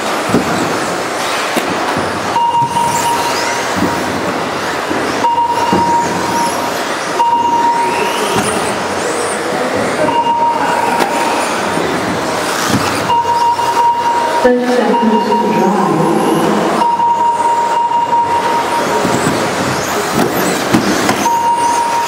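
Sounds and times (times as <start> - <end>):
electric motors whining: 2.1 - 22.0
short beep: 2.4 - 3.5, 5.2 - 6.4, 7.2 - 8.2, 10.1 - 10.9, 13.1 - 19.0, 21.2 - 22.0
reverberant din: 5.2 - 22.0.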